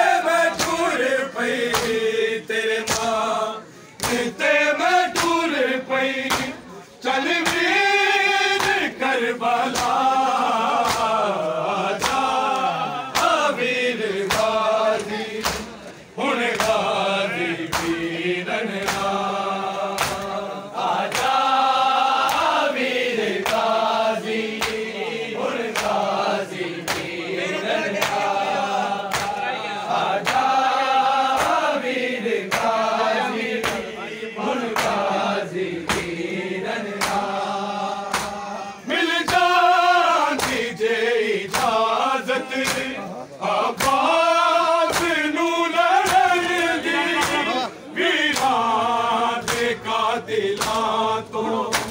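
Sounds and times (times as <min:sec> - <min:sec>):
men chanting a lament: 0:00.0 - 0:51.9
hands slapping chests: 0:00.5 - 0:01.0, 0:01.6 - 0:02.1, 0:02.8 - 0:03.2, 0:03.9 - 0:04.4, 0:05.1 - 0:05.6, 0:06.2 - 0:06.6, 0:07.3 - 0:07.8, 0:08.5 - 0:09.0, 0:09.6 - 0:11.3, 0:11.9 - 0:13.6, 0:14.2 - 0:17.0, 0:17.6 - 0:18.1, 0:18.7 - 0:19.3, 0:19.9 - 0:20.4, 0:21.0 - 0:21.6, 0:22.2 - 0:22.7, 0:23.3 - 0:24.9, 0:25.6 - 0:27.2, 0:27.9 - 0:28.4, 0:29.0 - 0:29.5, 0:30.1 - 0:31.7, 0:32.4 - 0:34.0, 0:34.6 - 0:35.1, 0:35.8 - 0:36.2, 0:36.9 - 0:37.4, 0:38.0 - 0:38.5, 0:39.2 - 0:40.8, 0:41.5 - 0:43.0, 0:43.7 - 0:44.2, 0:44.8 - 0:45.3, 0:45.9 - 0:47.7, 0:48.3 - 0:48.7, 0:49.4 - 0:49.8, 0:50.5 - 0:51.0, 0:51.6 - 0:51.9.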